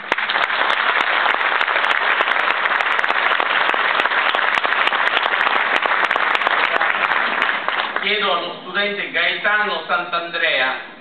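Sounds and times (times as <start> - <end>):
audience applauding: 0.0 - 8.5.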